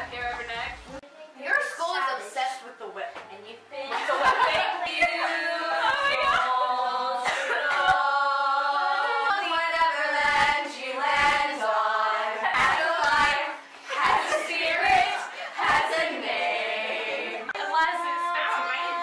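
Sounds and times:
girls singing together: 3.9s - 19.0s.

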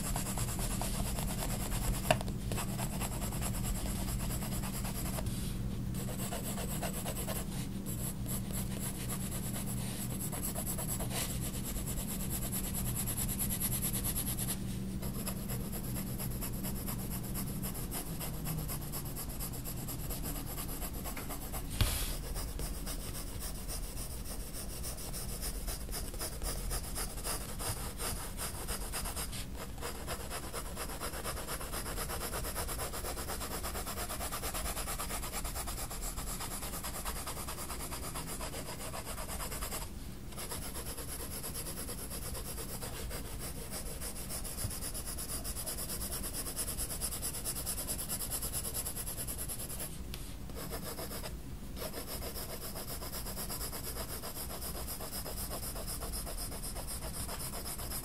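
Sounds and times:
colored pencil shading on paper: 0.0s - 5.3s, 5.9s - 49.9s, 50.5s - 58.0s.

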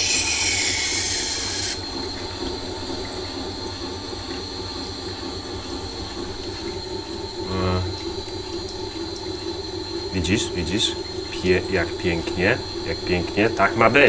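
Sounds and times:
knife hissing on grinding stone: 0.0s - 1.8s
grinder humming: 0.0s - 2.8s.

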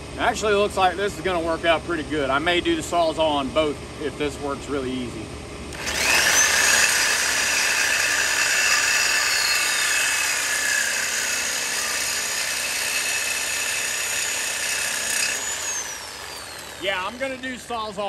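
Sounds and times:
reciprocating saw cutting metal: 5.7s - 18.0s.

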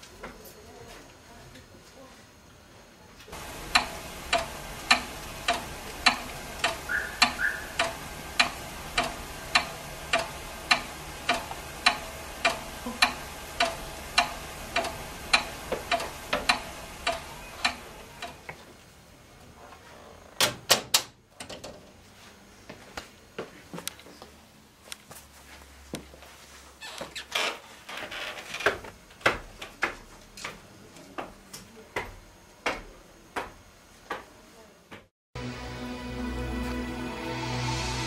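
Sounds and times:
clock ticking: 3.4s - 18.4s
low hum: 3.4s - 18.4s.

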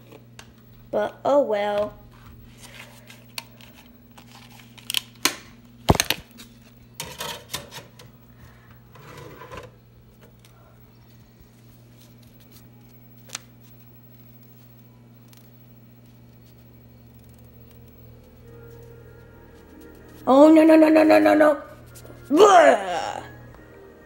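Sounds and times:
low electrical hum: 0.0s - 24.0s
plastic dvd case clicks and clatter: 3.3s - 6.3s.

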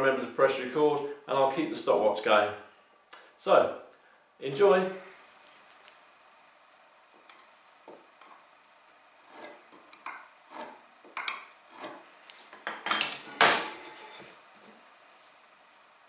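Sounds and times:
metal tools clinking on wood: 9.9s - 14.2s.

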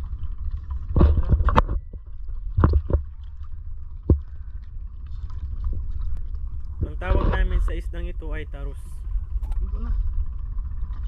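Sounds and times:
splashes and knocks at canoe: 0.0s - 6.2s
steady low rumble: 0.0s - 11.0s.

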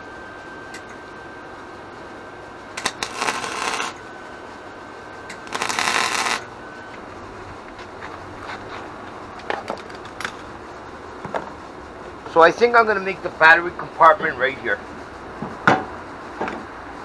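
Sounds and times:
welder arc crackling and sizzling: 2.6s - 4.0s, 5.3s - 6.6s.

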